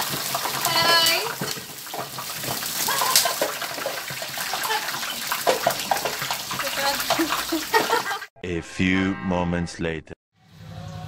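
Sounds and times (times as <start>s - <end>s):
meat sizzling in hot oil: 0.0s - 8.2s
oil crackling and popping: 0.0s - 8.2s.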